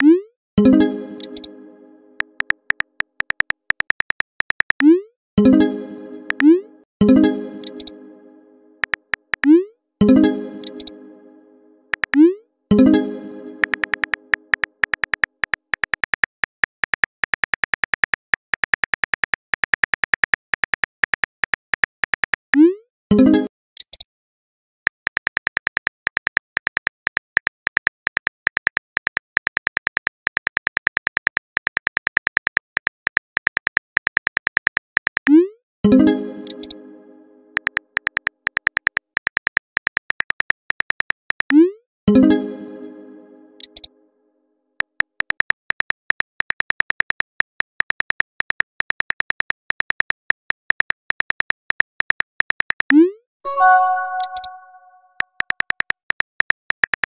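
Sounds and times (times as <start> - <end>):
phone keyboard typing clicks: 1.2 - 1.5, 7.6 - 7.9, 10.6 - 10.9, 13.6 - 17.8, 36.4 - 36.8, 53.5 - 54.8
chime: 42.1 - 43.7, 53.5 - 55.1.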